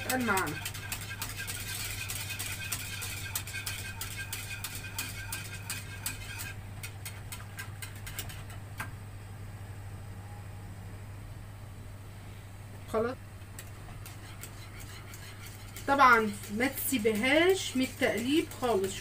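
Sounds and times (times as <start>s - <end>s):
whisk ticking against saucepan: 0.0s - 8.6s, 13.5s - 19.0s.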